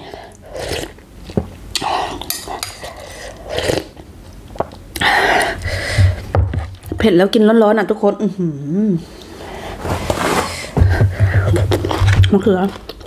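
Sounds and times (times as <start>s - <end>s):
slurping and chewing noodles: 0.0s - 4.1s.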